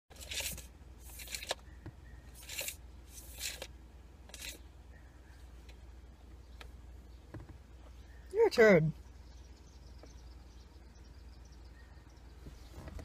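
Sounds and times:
tape measure blade scraping: 0.1 - 1.6, 2.3 - 3.7, 4.3 - 4.6.

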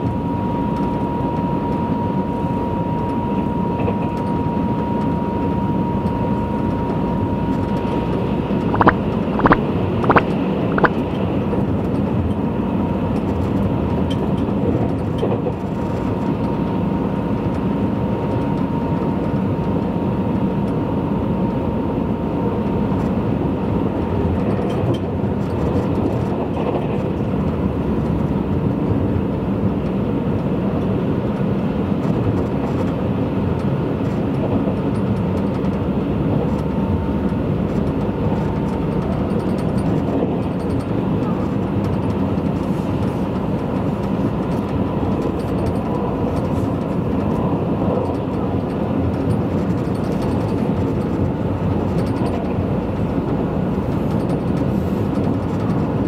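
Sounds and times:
train wheels and motors rumbling: 0.0 - 56.0
sharp clicks: 8.7 - 11.0.

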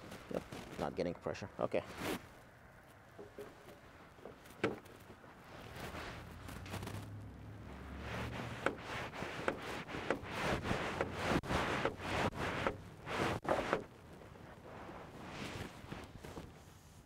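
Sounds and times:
hand air pump strokes: 8.2 - 13.9.

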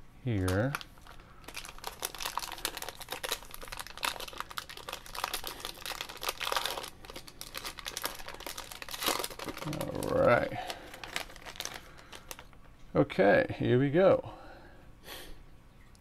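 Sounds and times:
foil wrapper crinkling and tearing: 0.3 - 12.7.

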